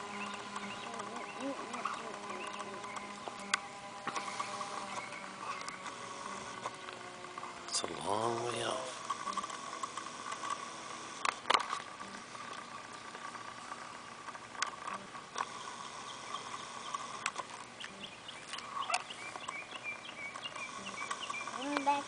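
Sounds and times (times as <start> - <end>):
sharp clicks: 0.0 - 7.5, 14.2 - 22.0
birds chirping: 0.0 - 22.0
distant model plane motor whine: 0.0 - 22.0.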